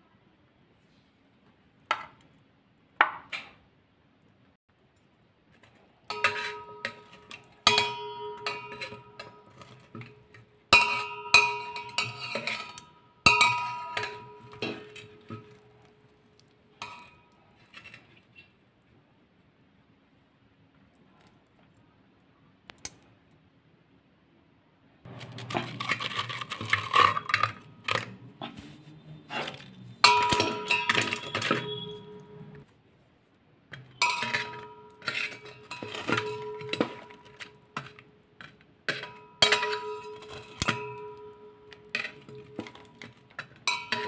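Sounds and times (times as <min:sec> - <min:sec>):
pot ringing: 0:06.1 - 0:15.9, 0:16.8 - 0:17.4, 0:29.8 - 0:32.6, 0:33.9 - 0:37.9, 0:39.0 - 0:44.0
metal tongs clinking on steel pot: 0:06.1 - 0:18.0, 0:25.2 - 0:28.2, 0:29.4 - 0:32.6, 0:33.7 - 0:44.0.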